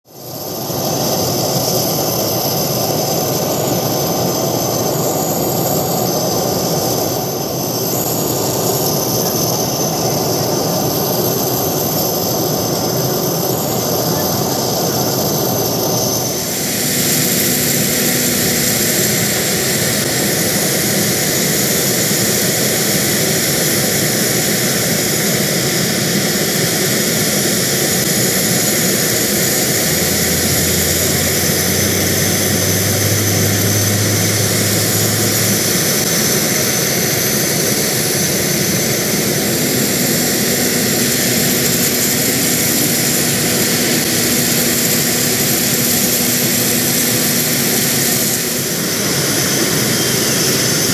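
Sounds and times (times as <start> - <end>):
helicopter turbine whine: 0.1 - 50.9
helicopter rotors turning: 1.0 - 50.9
low hum: 13.5 - 23.6, 27.6 - 50.9.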